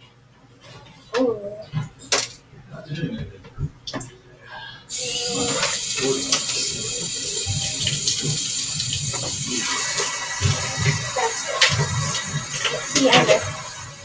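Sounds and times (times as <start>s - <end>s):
tap water splashing into sink: 5.0s - 13.9s.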